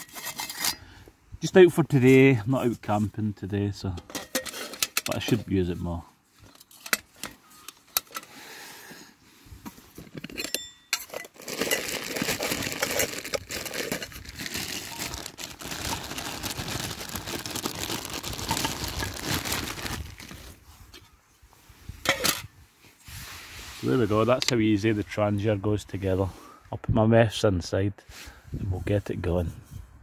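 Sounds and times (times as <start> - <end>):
metal stove parts clinking: 0.0 - 0.9, 4.0 - 5.4, 6.4 - 8.3, 10.1 - 11.8, 22.0 - 22.5
rustling and crinkling: 9.4 - 25.2
metallic ring: 10.4 - 11.2.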